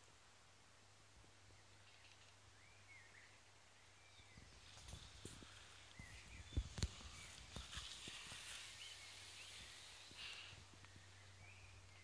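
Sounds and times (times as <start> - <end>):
faint bird chirps: 1.4 - 12.0
footsteps on grass: 4.6 - 10.4.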